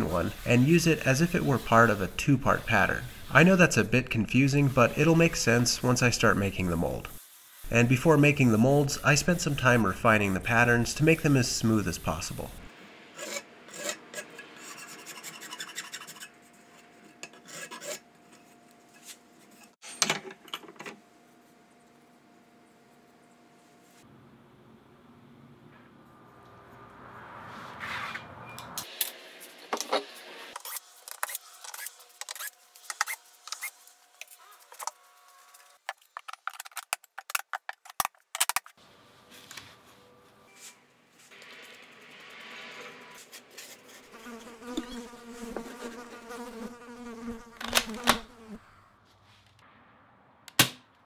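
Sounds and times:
rasping rubbing strokes: 0:00.0 - 0:12.6, 0:13.2 - 0:18.6.

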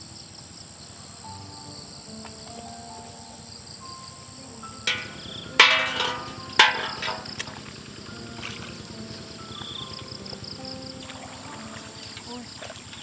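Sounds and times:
sharp ringing knocks: 0:04.8 - 0:10.9.

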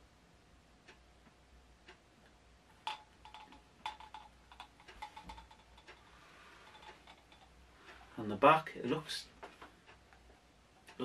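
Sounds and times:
clock ticking: 0:00.8 - 0:06.1, 0:09.8 - 0:11.0
handling clicks and rustles: 0:02.8 - 0:07.5.

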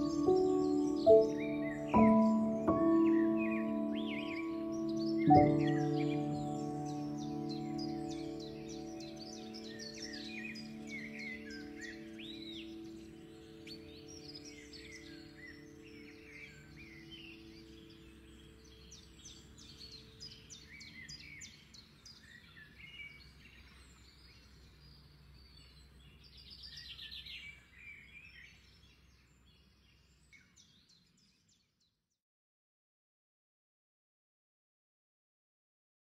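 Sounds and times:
low held chord: 0:00.0 - 0:21.0
birds chirping and trilling: 0:00.0 - 0:32.0.

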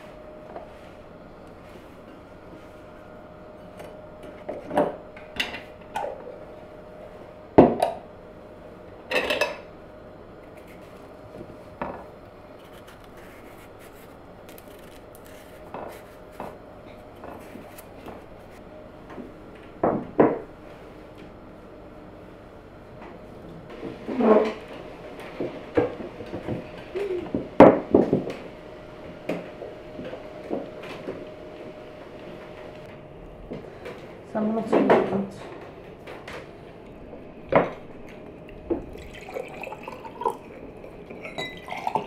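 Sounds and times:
faint hum: 0:00.0 - 0:42.0
dishes and utensils clattering: 0:09.1 - 0:09.7, 0:39.0 - 0:42.0.

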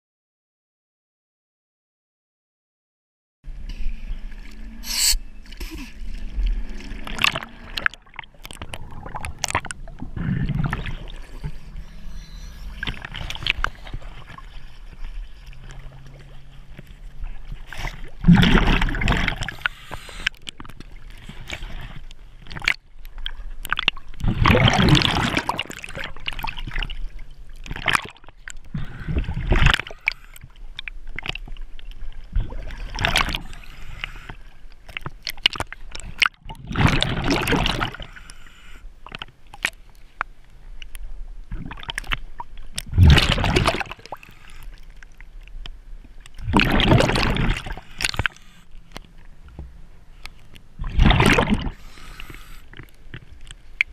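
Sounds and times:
water gurgling and sloshing: 0:03.5 - 0:53.9
diver's exhaled air bubbling: 0:04.1 - 0:14.6, 0:17.6 - 0:20.4, 0:24.2 - 0:26.8, 0:27.8 - 0:30.2, 0:32.3 - 0:34.4, 0:36.5 - 0:38.2, 0:42.8 - 0:44.6, 0:46.4 - 0:48.6, 0:50.8 - 0:52.7.

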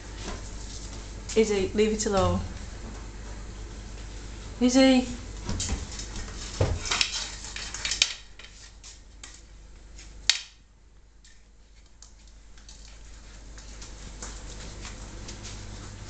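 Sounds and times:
brush and claws clattering on tiles: 0:05.6 - 0:10.5, 0:11.2 - 0:15.5.

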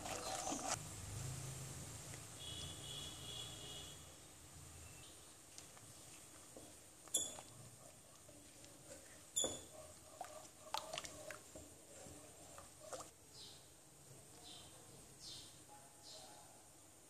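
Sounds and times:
spatula stirring in a pan: 0:00.0 - 0:00.8, 0:05.2 - 0:13.2.

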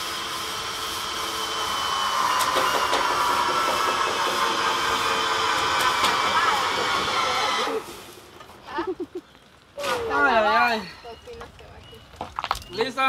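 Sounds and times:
broom scraping metal wall: 0:00.0 - 0:08.3.

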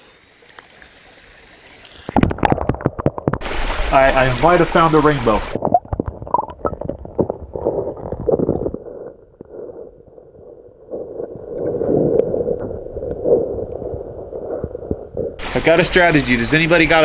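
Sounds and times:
underwater gurgling and sloshing: 0:00.1 - 0:17.0
rumbling swirl of water: 0:00.7 - 0:17.0
underwater clicks and knocks: 0:02.0 - 0:03.5, 0:05.6 - 0:08.8.

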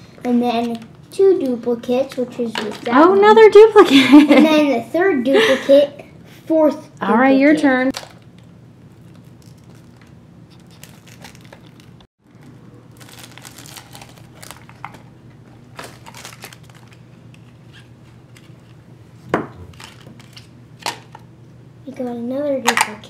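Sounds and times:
plastic wrapper crinkling and tearing: 0:07.9 - 0:18.6, 0:19.7 - 0:21.0.

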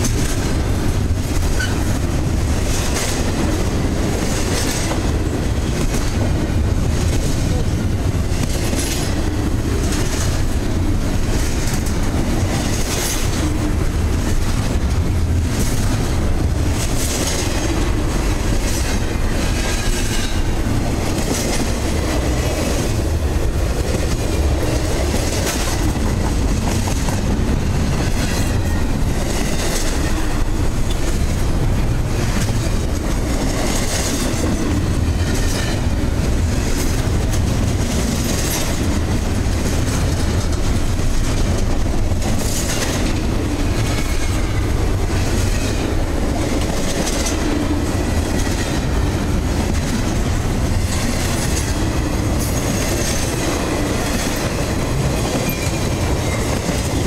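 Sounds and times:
steel wheels rumbling on rail: 0:00.0 - 0:57.0
wheels clacking over rail joints: 0:00.0 - 0:57.0.

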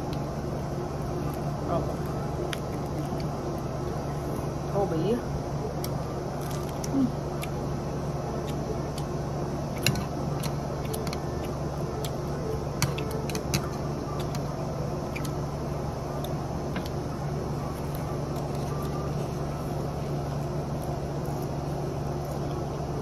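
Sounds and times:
low background hum: 0:00.0 - 0:23.0
crunchy chewing: 0:01.2 - 0:04.5, 0:05.7 - 0:07.7, 0:17.6 - 0:22.9.

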